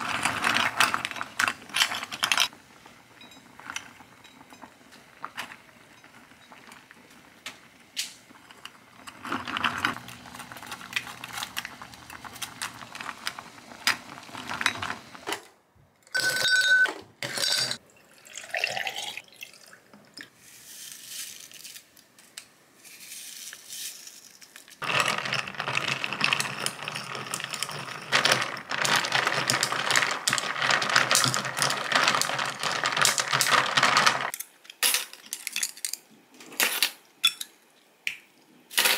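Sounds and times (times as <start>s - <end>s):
ice clinking against glass: 16.1s - 19.2s
water poured over ice: 18.1s - 19.7s.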